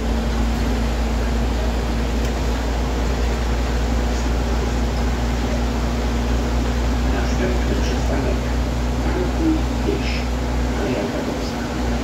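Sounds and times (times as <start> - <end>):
bus diesel engine drone: 0.0 - 12.0.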